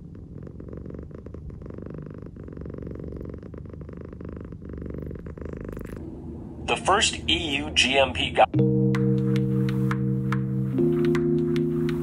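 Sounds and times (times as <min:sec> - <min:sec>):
cat purring: 0:00.0 - 0:08.4.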